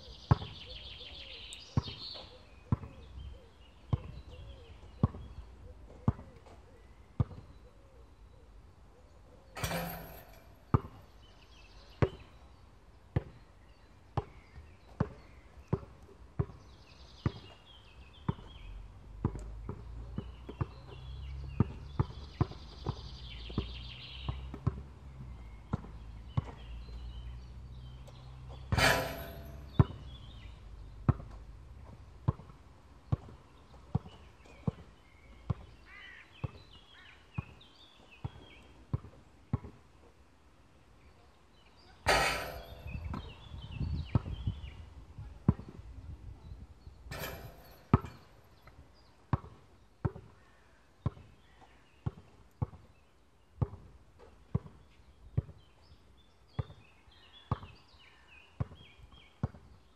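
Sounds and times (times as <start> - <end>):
basketball bouncing on hard court: 0.3 - 0.6, 6.1 - 6.3, 19.2 - 20.9, 21.6 - 23.0, 24.3 - 24.9, 28.7 - 30.1, 32.2 - 34.9, 42.1 - 44.6, 47.1 - 48.3, 52.0 - 52.8
ball striking hoop with ringing: 9.6 - 11.1, 28.7 - 30.4, 42.1 - 44.4, 47.1 - 48.4.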